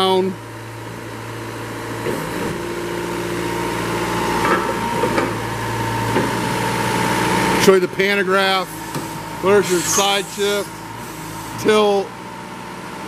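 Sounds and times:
hydraulics working: 0.0 - 12.2
diesel engine running: 0.0 - 13.0
thin whine: 8.6 - 12.0.

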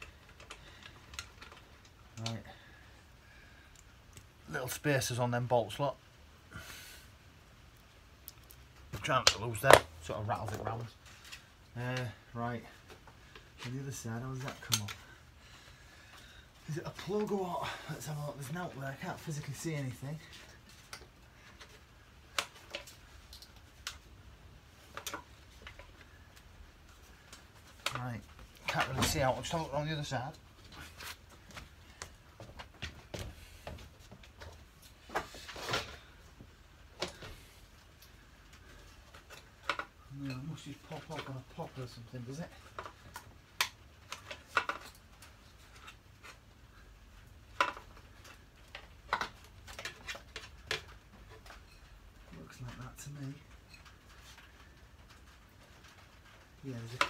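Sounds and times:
light clicks and knocks on bodywork: 7.8 - 15.2
clicks and taps on plastic bodywork: 47.2 - 51.6.

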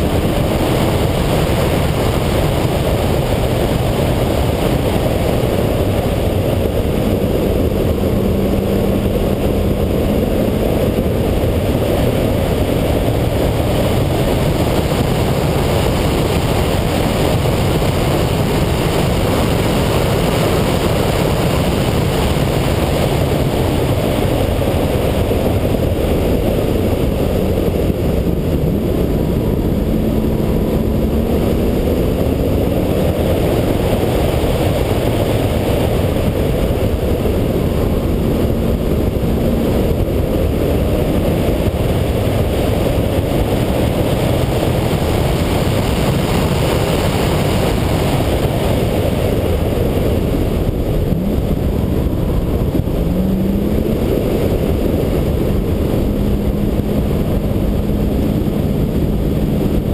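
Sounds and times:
car engine at speed: 0.0 - 59.9
wind and road noise: 0.0 - 59.9.

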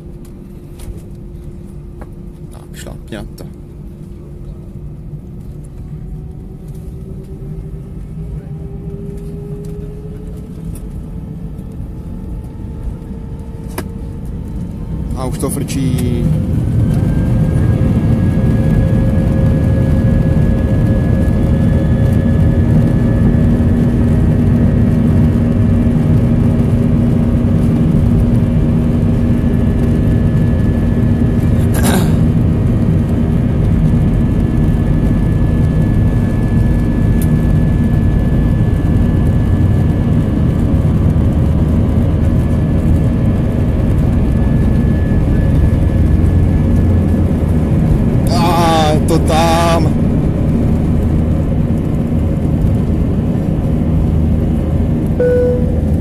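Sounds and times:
jet engines roaring: 0.3 - 56.0
steady hum: 55.2 - 56.0.

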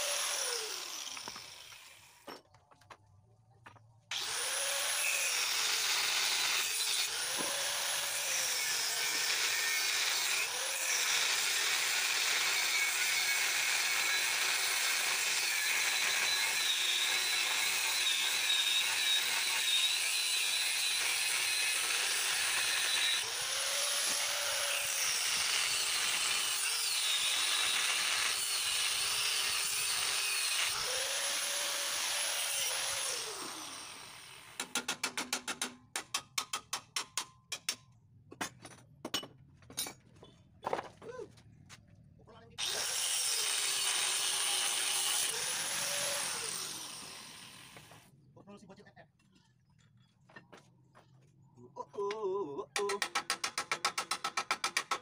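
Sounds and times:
power tool on steel: 0.0 - 2.2, 4.1 - 34.8, 42.6 - 48.1.

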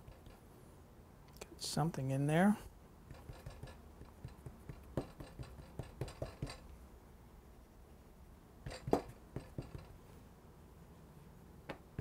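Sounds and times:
hands patting dough on wood: 3.1 - 6.6.

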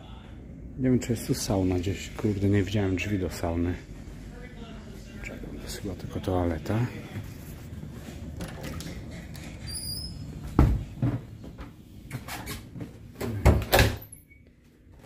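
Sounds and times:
door squeaking: 9.4 - 10.7.

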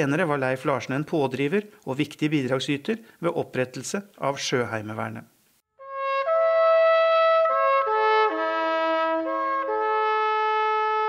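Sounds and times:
brass instruments holding chords: 5.8 - 11.0.

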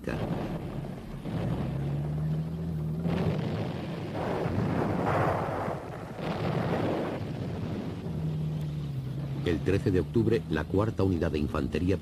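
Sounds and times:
rumbling explosion noise: 0.0 - 11.3.

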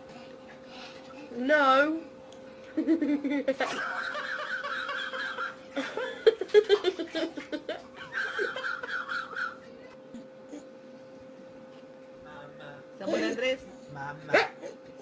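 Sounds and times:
laughter in short bursts: 2.8 - 9.7.

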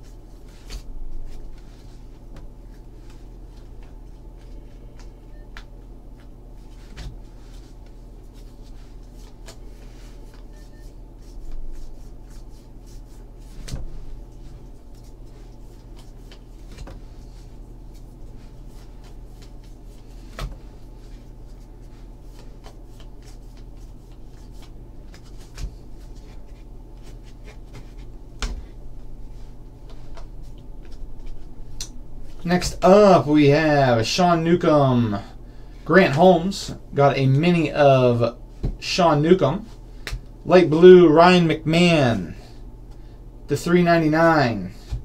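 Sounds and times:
cards sliding and rubbing: 6.2 - 28.6.

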